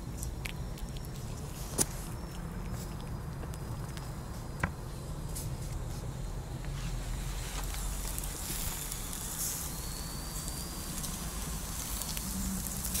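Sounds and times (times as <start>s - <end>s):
steady low hum: 0.0s - 13.0s
meat sizzling over charcoal: 7.5s - 13.0s.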